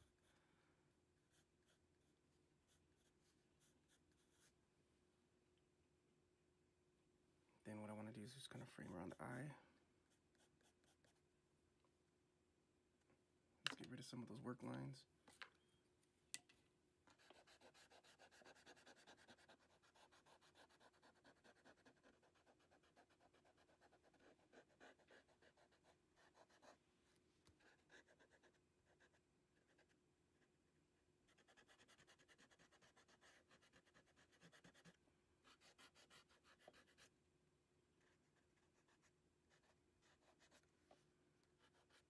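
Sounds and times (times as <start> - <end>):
eraser rubbing on paper: 17.2 - 26.7.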